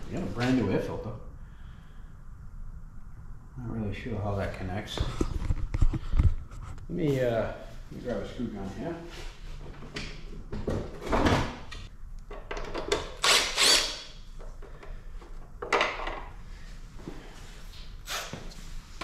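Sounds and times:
cordless drill driving screw: 0:13.2 - 0:14.1.

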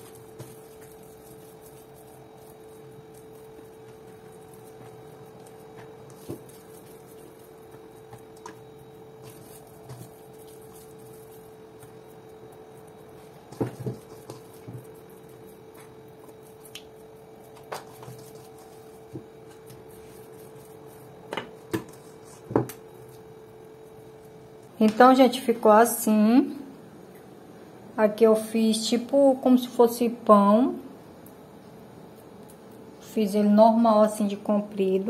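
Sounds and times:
hands working dough: 0:00.0 - 0:25.2
steady hum: 0:00.0 - 0:35.0.

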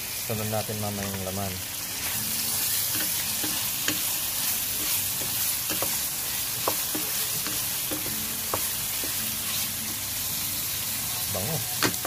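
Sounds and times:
tripe sizzling in a pan: 0:00.0 - 0:12.0
wooden spatula knocking on pan: 0:06.6 - 0:09.2.

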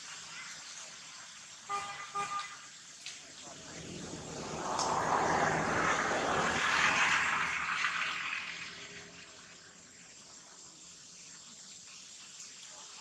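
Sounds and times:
vehicle passing by: 0:03.4 - 0:10.0.

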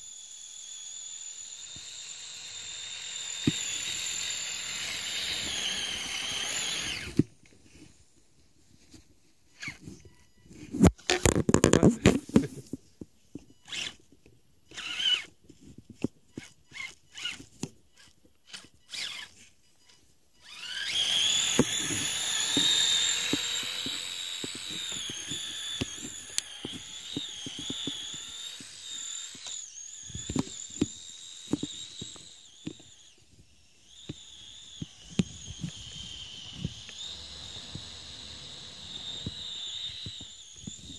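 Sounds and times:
high-pitched electric motor whine: 0:00.0 - 0:07.2, 0:13.6 - 0:14.0, 0:14.7 - 0:15.3, 0:16.3 - 0:40.9
tracks clicking and crunching: 0:10.7 - 0:14.1, 0:14.7 - 0:33.1.

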